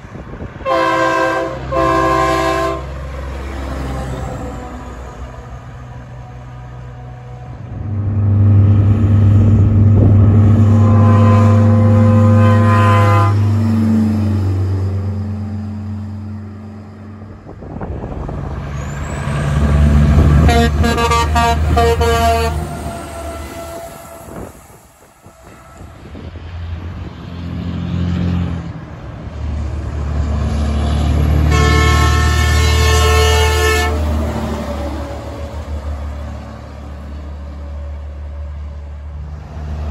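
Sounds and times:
diesel truck engines rumbling: 0.0 - 39.9
truck air horn blasts: 0.6 - 3.0, 10.2 - 13.9, 20.2 - 24.6, 31.4 - 34.6.

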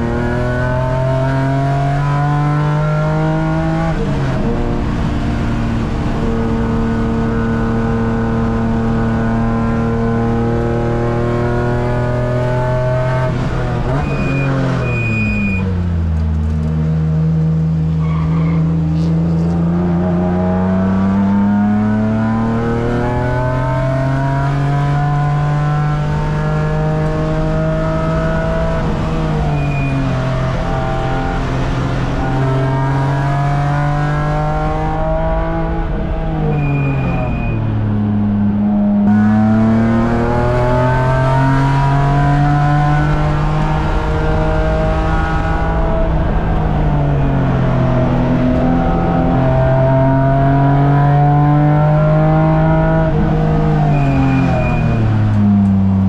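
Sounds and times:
car engine revving: 0.0 - 56.0
tyre squeals: 13.9 - 15.8, 17.9 - 19.5, 29.2 - 30.9, 36.4 - 37.7, 53.8 - 55.6.

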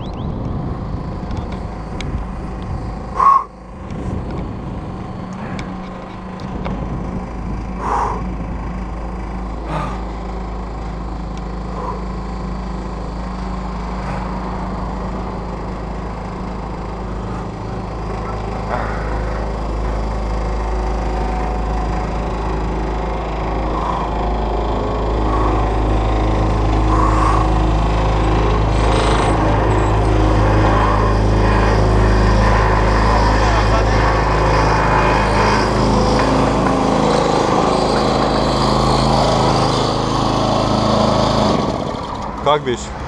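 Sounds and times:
wind rumbling on microphone: 0.0 - 9.0
low mechanical hum: 0.0 - 43.0.

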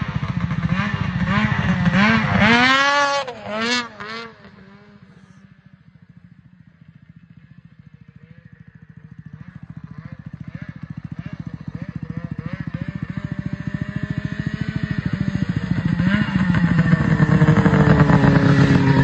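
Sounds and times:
snowmobile engine revving: 0.0 - 5.4, 9.4 - 19.0.

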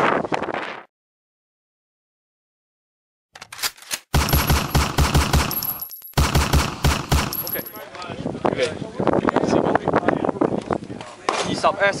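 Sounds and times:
rapid automatic gunfire: 4.1 - 7.7.

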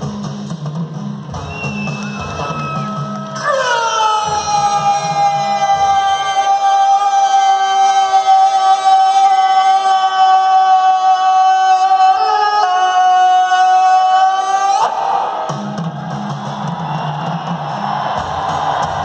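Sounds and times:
long shouted call: 1.4 - 15.4.

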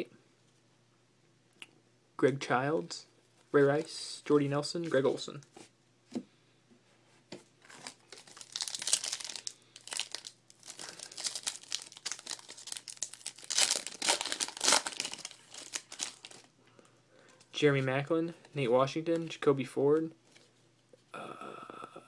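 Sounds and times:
foil wrapper crinkling and tearing: 7.7 - 16.5.

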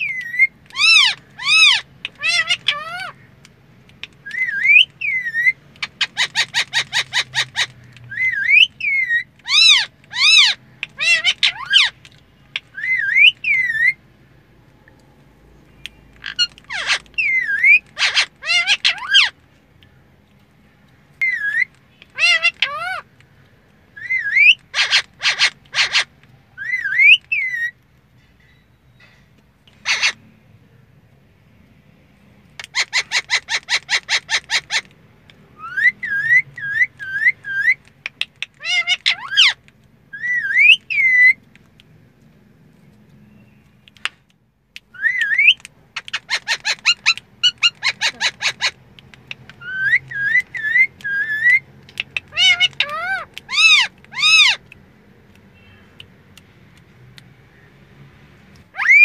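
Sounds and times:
rapid clicking bird calls: 0.0 - 13.9, 15.8 - 20.0, 32.6 - 41.9, 43.0 - 56.9
parakeet whistling: 4.2 - 12.0, 12.6 - 14.0, 15.9 - 19.4, 21.2 - 23.0, 24.0 - 27.8, 35.6 - 37.8, 38.6 - 41.4, 44.9 - 48.8, 49.6 - 54.6, 58.7 - 59.0.

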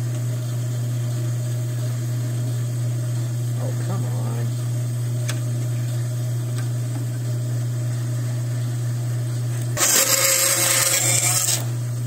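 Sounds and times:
bandsaw humming: 9.7 - 11.8
saw blade cutting plastic pipe: 9.8 - 11.7.

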